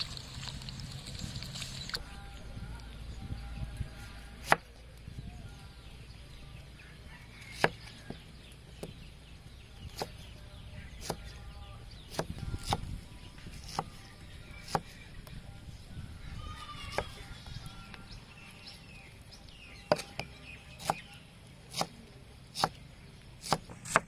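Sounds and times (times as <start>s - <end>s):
knife chopping on wooden board: 7.5s - 8.2s, 12.1s - 12.8s, 14.6s - 14.9s, 19.9s - 21.1s, 21.7s - 22.0s, 22.6s - 22.8s, 23.4s - 24.0s.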